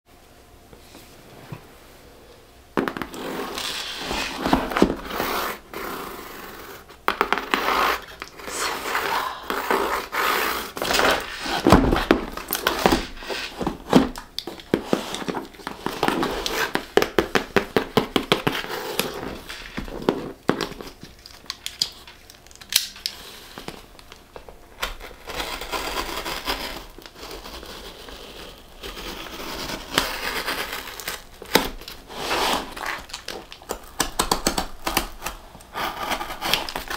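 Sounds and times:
packing tape crackling and tearing: 3.0 - 36.9.

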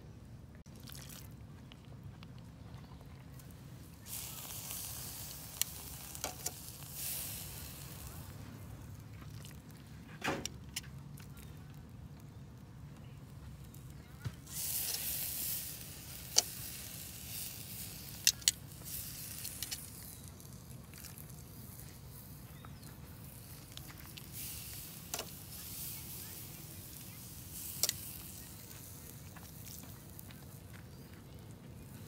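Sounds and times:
meat sizzling on a grill: 3.9 - 9.7, 13.6 - 31.5.

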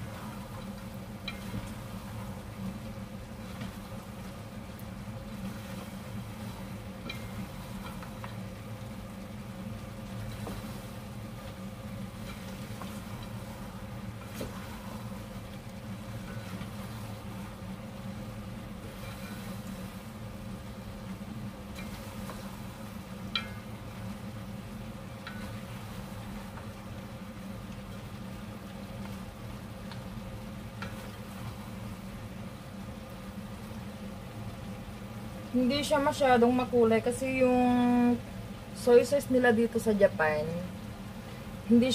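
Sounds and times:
steady low hum: 0.0 - 41.9
wooden spatulas scraping a pot: 18.8 - 19.8.

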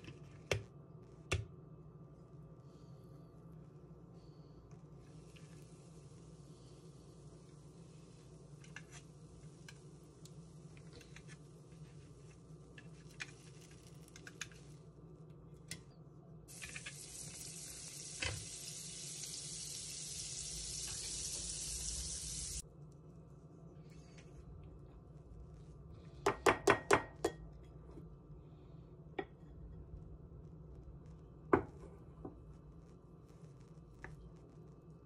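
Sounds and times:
butter sizzling on hot plates: 5.1 - 11.9, 16.5 - 22.6.

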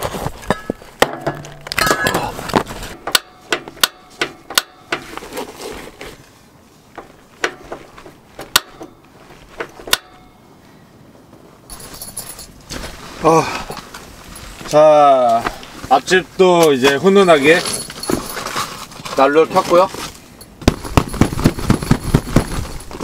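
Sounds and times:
gas canisters clattering: 0.4 - 5.0.

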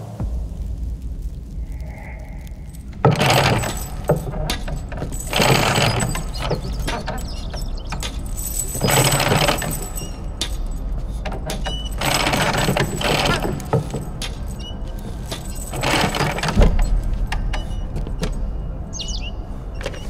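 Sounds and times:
lift cage rattling and clanking: 3.0 - 18.9.

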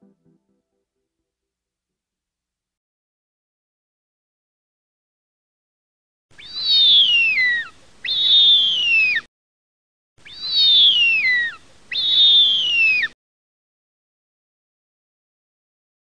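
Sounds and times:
bird of prey screeches: 6.4 - 9.3, 10.3 - 13.2.

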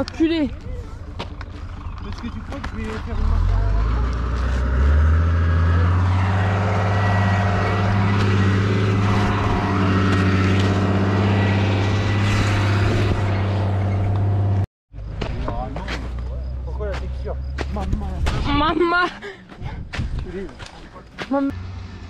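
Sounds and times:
engine humming steadily: 0.0 - 19.5.

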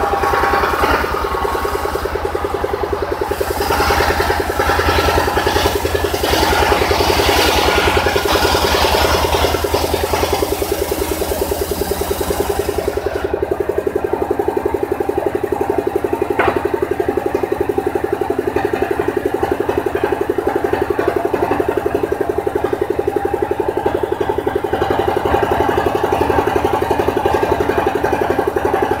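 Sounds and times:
saw bench engine throbbing: 0.0 - 29.0
saw blade spinning: 0.0 - 29.0.

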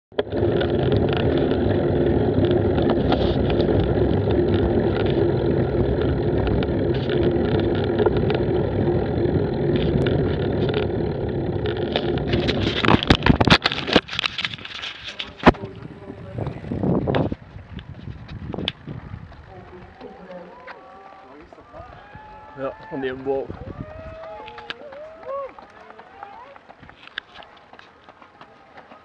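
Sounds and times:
vehicle engine running: 0.1 - 20.7
rushing noise: 0.2 - 17.4.

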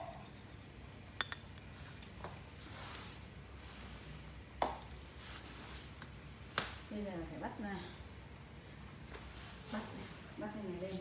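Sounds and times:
metal cup clinking: 0.0 - 0.6, 1.2 - 1.5.

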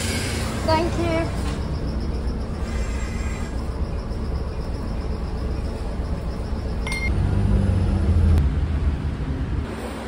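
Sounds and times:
road vehicle rumble: 0.0 - 10.0
high electronic beep: 3.9 - 7.2.

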